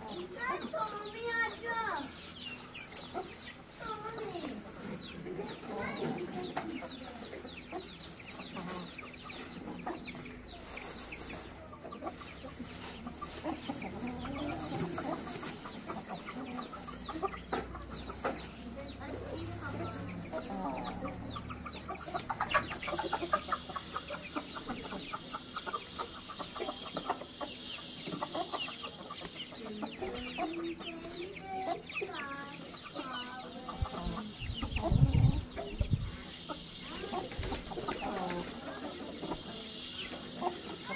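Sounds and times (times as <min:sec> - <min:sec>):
chickens clucking: 0:00.0 - 0:40.9
plastic bag crinkling: 0:10.6 - 0:17.1.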